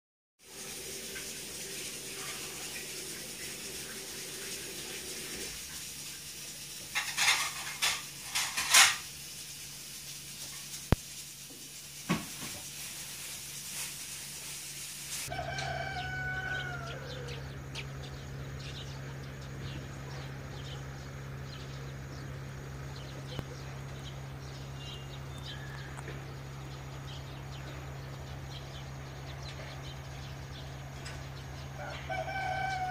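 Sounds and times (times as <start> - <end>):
rural background sounds: 0.5 - 32.9
steady low hum: 14.4 - 32.9
rooster crowing: 15.3 - 17.9, 25.3 - 26.4, 31.6 - 32.9.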